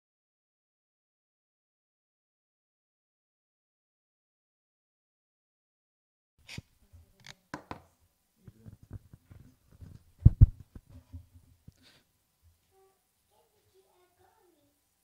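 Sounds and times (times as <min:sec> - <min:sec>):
loud thumps: 0:10.2 - 0:10.8.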